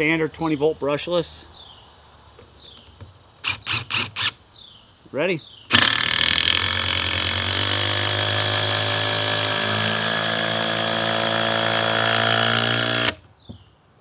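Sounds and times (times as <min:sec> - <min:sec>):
impact driver hammering screw: 0:05.7 - 0:13.2.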